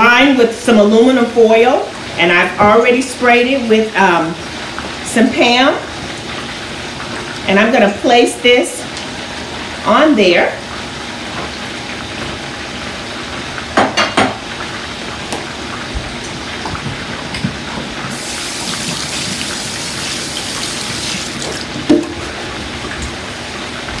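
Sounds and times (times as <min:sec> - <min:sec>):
dishes knocking: 0:13.8 - 0:14.4
tap water running into sink: 0:15.3 - 0:24.0.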